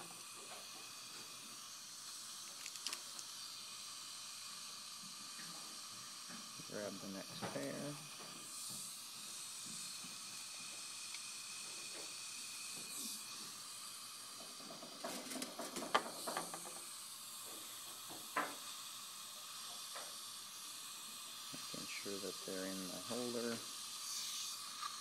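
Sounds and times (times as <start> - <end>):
dental suction hiss: 0.0 - 25.0.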